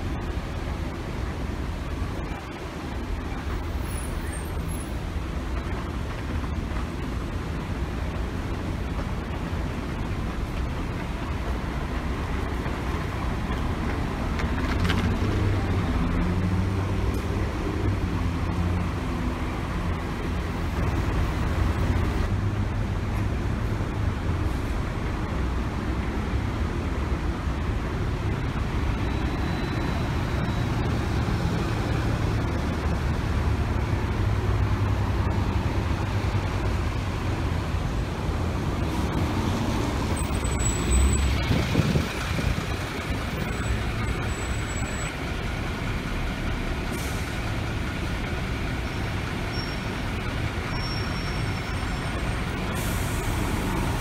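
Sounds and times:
bus diesel engines rumbling: 0:00.0 - 0:54.0
air brakes hissing: 0:46.8 - 0:47.6, 0:50.8 - 0:54.0.

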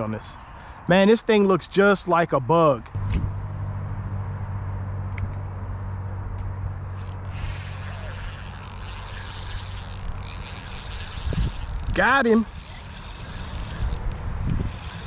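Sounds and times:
highway traffic drone: 0:03.0 - 0:15.0
high-pitched buzz: 0:06.9 - 0:15.0.

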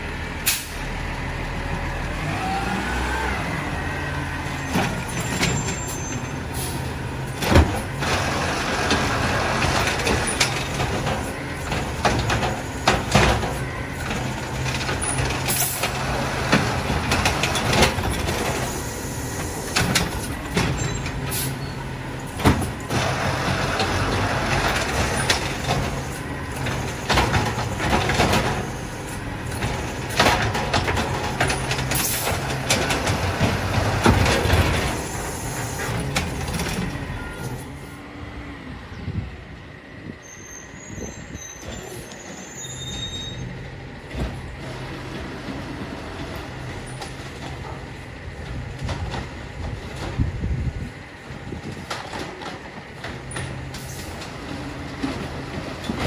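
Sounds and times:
diesel garbage truck running: 0:00.0 - 0:56.0
carts banging into hopper: 0:22.3 - 0:28.7.

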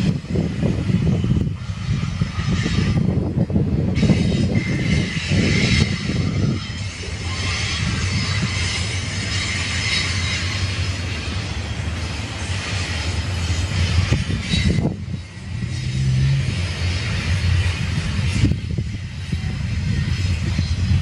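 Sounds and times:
train wheels rumbling on rail: 0:00.0 - 0:21.0
high-pitched wheel squeal: 0:03.9 - 0:11.9, 0:12.7 - 0:19.4.

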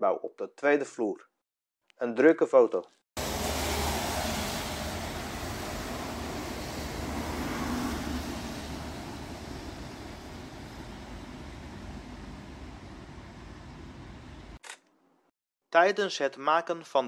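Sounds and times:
bus passing: 0:03.2 - 0:14.6
city street traffic: 0:03.2 - 0:14.6.

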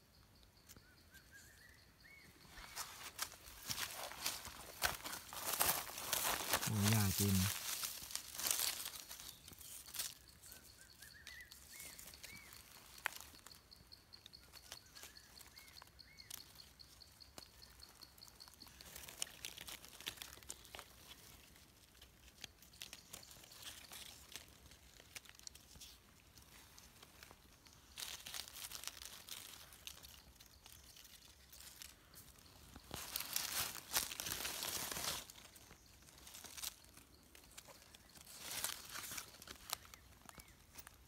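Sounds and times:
bird chirping: 0:00.0 - 0:07.4, 0:08.5 - 0:19.0, 0:35.3 - 0:41.0
dry leaves crackling and rustling: 0:02.4 - 0:41.0.

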